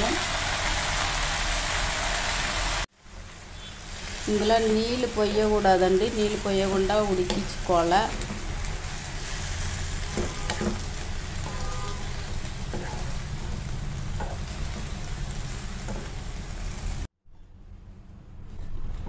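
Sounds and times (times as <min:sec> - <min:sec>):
leaves sizzling in oil: 0:00.0 - 0:17.1
spatula scraping and knocking pan: 0:10.1 - 0:15.1, 0:15.8 - 0:16.2.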